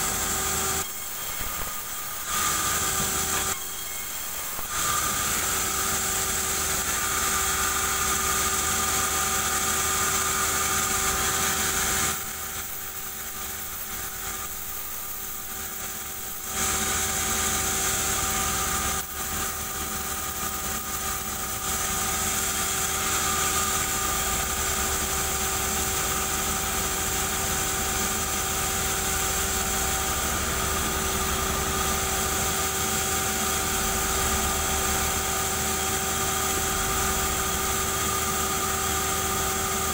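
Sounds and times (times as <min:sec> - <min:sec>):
band saw machine hum: 0:00.0 - 0:39.9
saw cutting hiss: 0:00.0 - 0:39.9.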